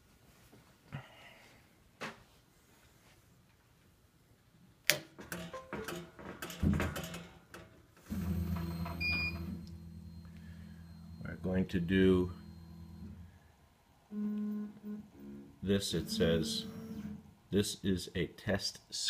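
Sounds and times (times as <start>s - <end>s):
steady low hum: 8.1s - 17.9s
motor whirring and clicking: 15.8s - 17.2s.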